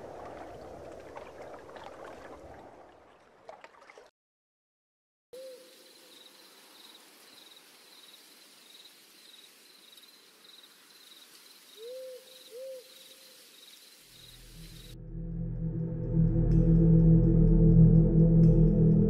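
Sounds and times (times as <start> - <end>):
owl hoots: 5.4 - 5.7, 11.8 - 13.3
insect chirping: 5.4 - 15.0
low musical drone: 14.9 - 19.0.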